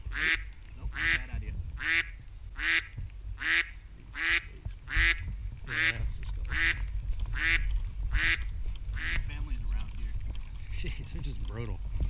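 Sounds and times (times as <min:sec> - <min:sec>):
goose honking: 0:00.1 - 0:09.3.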